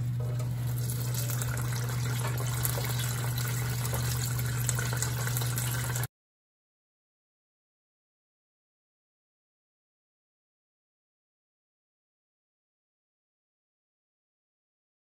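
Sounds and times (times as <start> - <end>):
oil bubbling and crackling in fryer: 0.0 - 6.1
steady low hum: 0.0 - 6.1.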